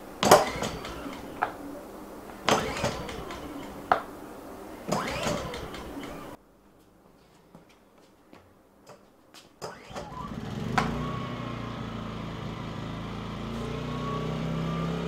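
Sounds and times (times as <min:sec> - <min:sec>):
recoil starter cord pull: 0:00.2 - 0:01.4, 0:02.5 - 0:03.8, 0:04.9 - 0:06.4
engine turning over: 0:00.2 - 0:01.5, 0:02.5 - 0:04.0, 0:04.9 - 0:06.4, 0:09.7 - 0:15.0.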